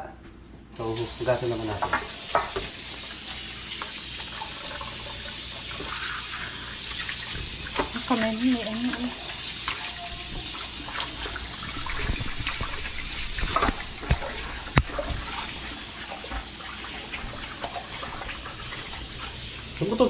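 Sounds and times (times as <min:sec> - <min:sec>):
faucet running into steel bowl: 0:01.0 - 0:20.0.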